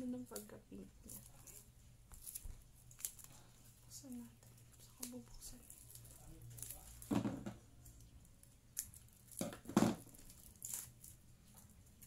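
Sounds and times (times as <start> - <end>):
packaging tearing and crinkling: 5.0 - 7.2, 8.7 - 11.2.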